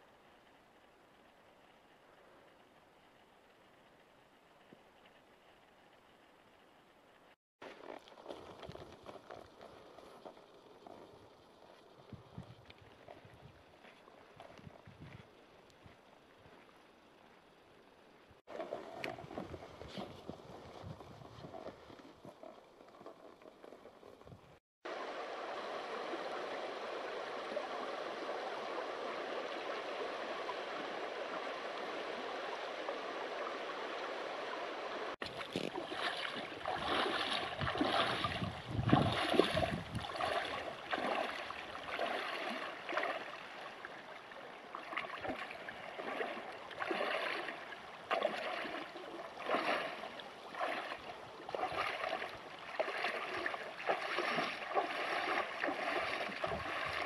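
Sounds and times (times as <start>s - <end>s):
flowing river: 7.6s - 24.3s, 24.9s - 57.0s
splashing steps through water: 35.2s - 43.8s, 44.7s - 57.0s.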